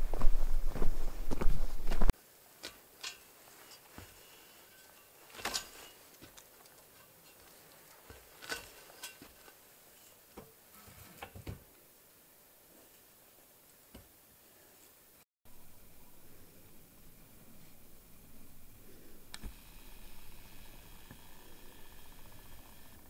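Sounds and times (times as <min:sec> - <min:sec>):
footsteps through dry brush: 0:00.0 - 0:10.3.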